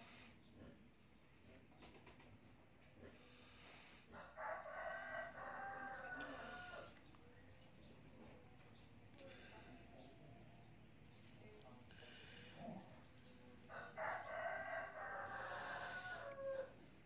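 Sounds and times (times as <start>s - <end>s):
rooster crowing: 4.1s - 7.0s, 13.7s - 16.9s.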